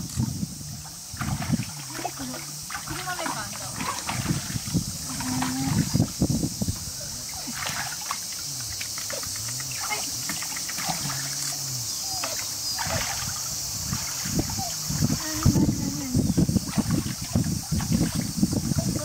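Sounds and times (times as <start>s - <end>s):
pool water splashing: 0.0s - 19.0s.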